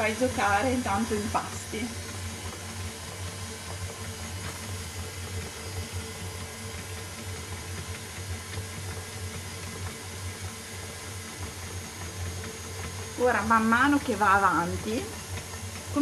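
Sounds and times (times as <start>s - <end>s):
mixer motor hum: 0.0s - 16.0s
stand mixer beating dough: 0.0s - 16.0s.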